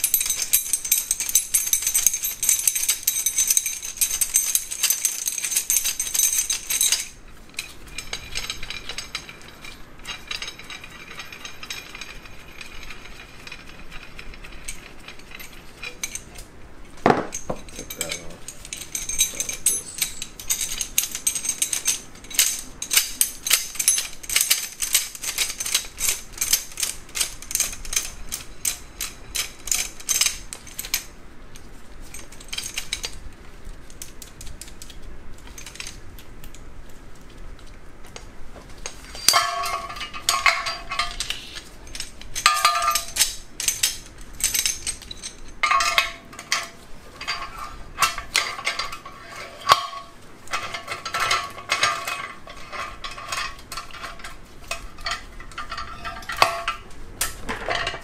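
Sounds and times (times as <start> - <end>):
metal-on-metal clinks ringing: 0.0 - 16.4, 17.0 - 31.1, 39.1 - 56.9
metal clicks of puller parts: 38.8 - 58.0.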